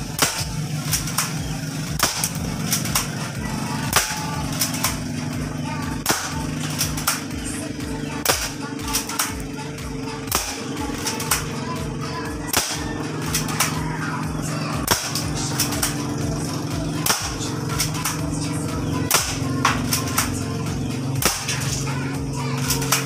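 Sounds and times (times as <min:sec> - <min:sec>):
background music with low beat: 0:00.0 - 0:23.0
airsoft pistol shots: 0:00.1 - 0:01.4, 0:02.0 - 0:03.2, 0:03.9 - 0:05.1, 0:06.0 - 0:07.4, 0:08.2 - 0:09.5, 0:10.3 - 0:11.5, 0:12.5 - 0:13.8, 0:14.8 - 0:16.0, 0:17.0 - 0:18.2, 0:19.1 - 0:20.4, 0:21.2 - 0:21.8.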